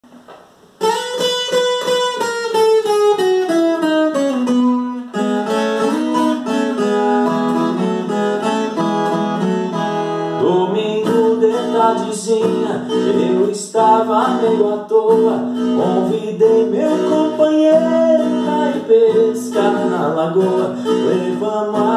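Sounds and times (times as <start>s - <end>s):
plucked string instrument: 0.3s - 21.9s
man singing: 10.4s - 21.9s.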